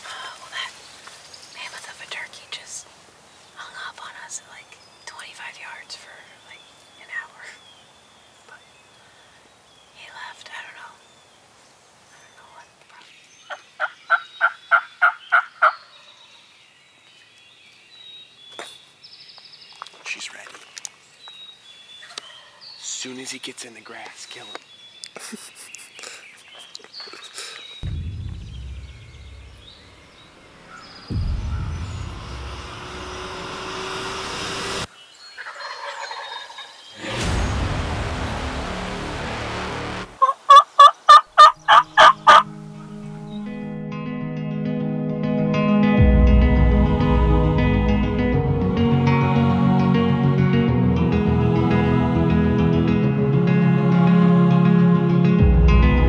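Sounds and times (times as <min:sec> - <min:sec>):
small birds calling: 0:00.4 - 0:32.5, 0:34.9 - 0:37.0, 0:40.2 - 0:42.6
turkey gobbling: 0:13.8 - 0:15.8, 0:35.4 - 0:36.8, 0:40.2 - 0:42.5
turkey call yelps: 0:40.2 - 0:42.5.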